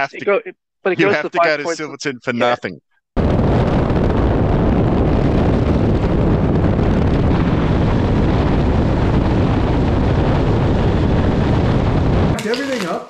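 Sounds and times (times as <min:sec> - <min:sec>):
wind buffeting microphone: 0:03.2 - 0:12.4.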